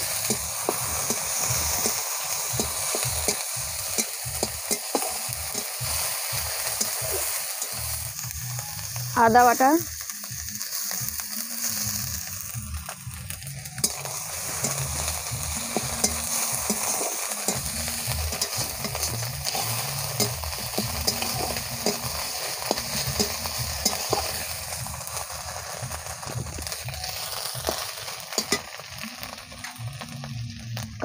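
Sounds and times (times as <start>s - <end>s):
paste sizzling in oil: 0.0s - 31.0s
spatula clicking against pan: 2.6s - 5.8s, 20.2s - 22.1s, 28.3s - 28.7s
metal spatula scraping pan: 15.8s - 24.4s.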